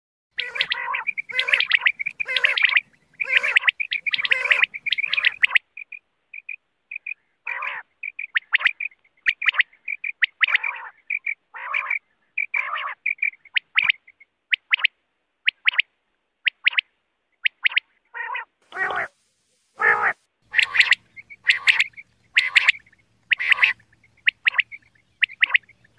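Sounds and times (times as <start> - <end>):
quail calling: 0.4 - 19.2, 19.8 - 25.9.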